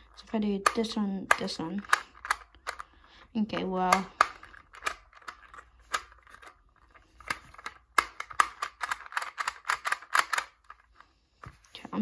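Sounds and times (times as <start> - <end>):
puzzle dials clicking: 0.0 - 11.0.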